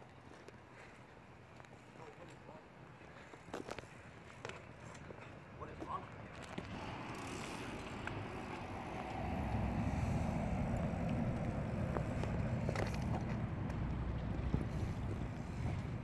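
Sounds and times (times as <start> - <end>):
tyres rolling over asphalt: 5.6 - 16.0
wind on microphone: 6.6 - 16.0.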